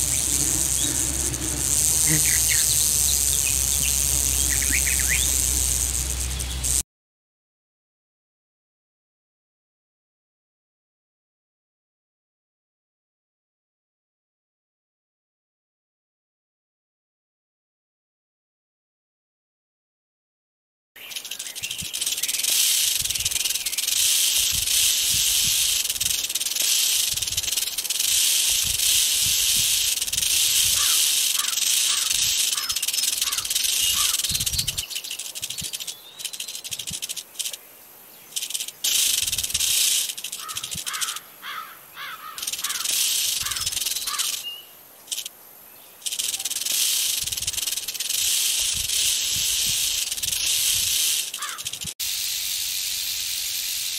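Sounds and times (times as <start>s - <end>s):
rattlesnake tail rattle buzzing: 0.0s - 6.8s, 21.0s - 37.6s, 38.3s - 45.3s, 46.0s - 53.9s.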